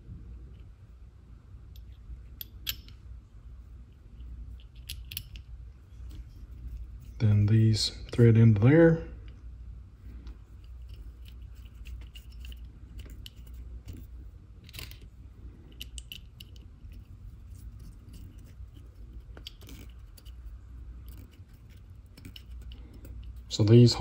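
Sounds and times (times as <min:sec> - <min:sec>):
low steady hum: 0:00.0 - 0:24.0
metallic clicks and scrapes: 0:03.9 - 0:08.3, 0:10.2 - 0:23.7.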